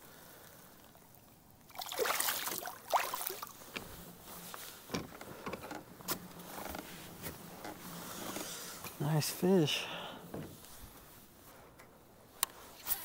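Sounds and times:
water splashing: 0.1 - 4.1
knocks and scrapes on kayak: 3.7 - 9.0.

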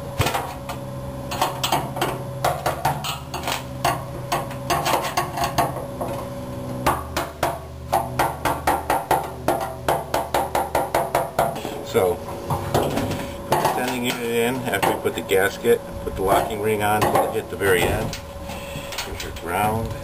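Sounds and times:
steady low hum: 0.0 - 20.0
hammer tapping metal: 6.8 - 11.6.

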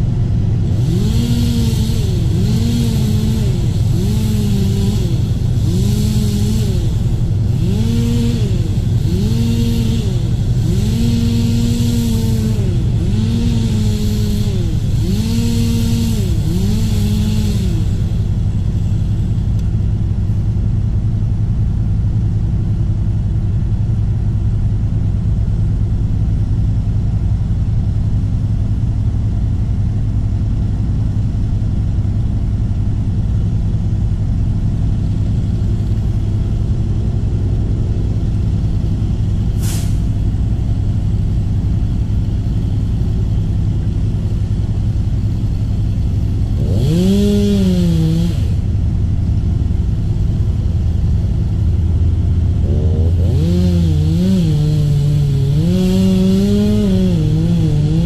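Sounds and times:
large engine running: 0.0 - 58.0
burst of hiss: 39.6 - 40.1.

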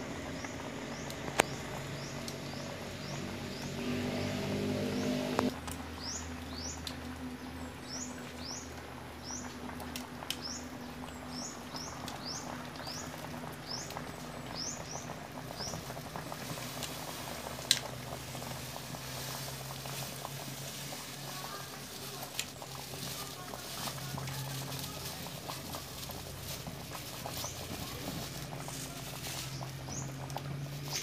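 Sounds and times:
liquid simmering in a pan: 5.6 - 31.0.

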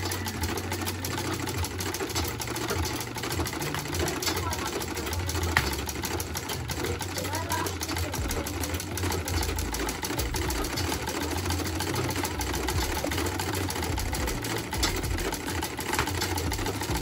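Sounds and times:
sewing machine clattering: 0.0 - 17.0.

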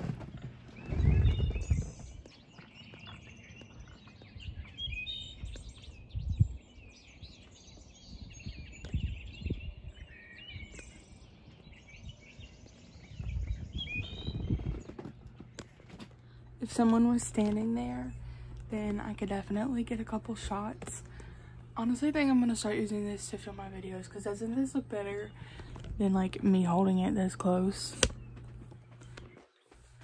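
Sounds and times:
microphone handling rumbles: 0.0 - 6.7, 7.3 - 10.8, 11.7 - 19.2, 25.3 - 26.4
birds chirping: 0.0 - 30.0.

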